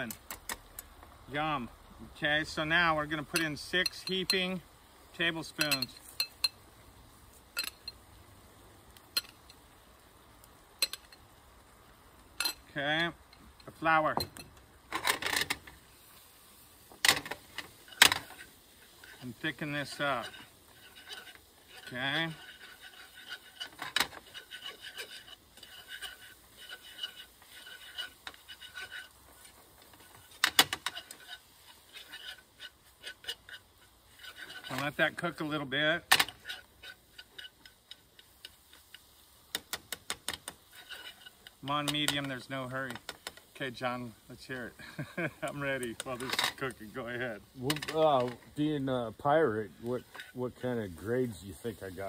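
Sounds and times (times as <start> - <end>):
utensil scraping a skillet: 0.0 - 11.4, 12.1 - 52.0
spoon clinking against pan: 5.6 - 6.6
utensil clacking against pan: 17.0 - 35.2, 36.1 - 43.5.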